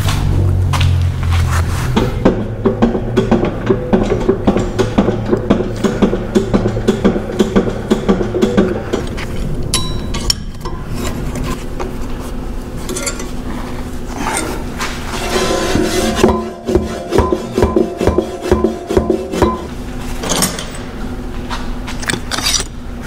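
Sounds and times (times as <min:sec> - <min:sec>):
steel plate clinking and scraping: 0:12.8 - 0:13.5, 0:14.2 - 0:20.7
background music with beat: 0:15.4 - 0:19.7.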